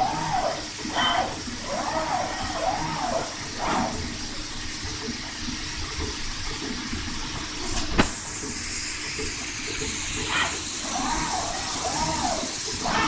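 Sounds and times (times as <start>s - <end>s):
cutting machine hissing: 10.3s - 13.0s.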